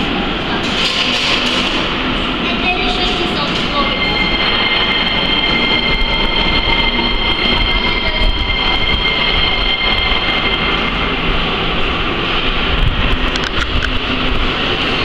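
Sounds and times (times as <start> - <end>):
train rumble: 0.0 - 15.0
high-pitched train squeal: 0.9 - 12.8.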